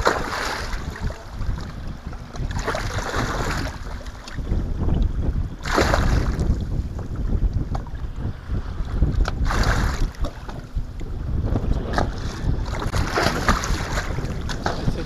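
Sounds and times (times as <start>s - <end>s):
fish thrashing and water splashing: 0.0s - 4.4s, 5.6s - 6.7s, 9.2s - 10.7s, 11.9s - 15.0s
wind on microphone: 0.0s - 15.0s.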